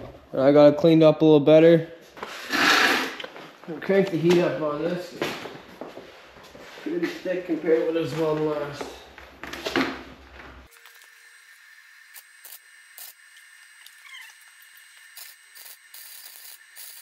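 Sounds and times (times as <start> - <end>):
arc welding crackling hiss: 10.7 - 17.0.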